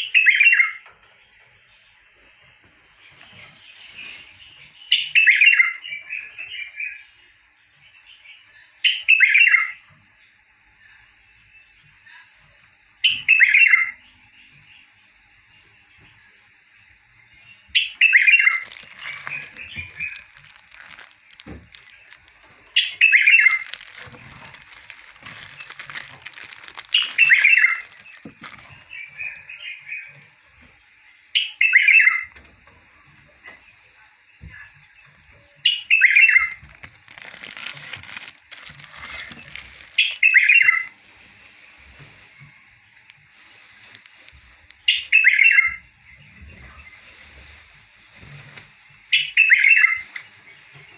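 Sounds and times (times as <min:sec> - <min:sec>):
plastic wrapping crinkling: 0:17.8 - 0:29.5, 0:36.3 - 0:45.3, 0:46.5 - 0:50.9
bird singing falling notes: 0:17.8 - 0:33.1, 0:35.6 - 0:40.9.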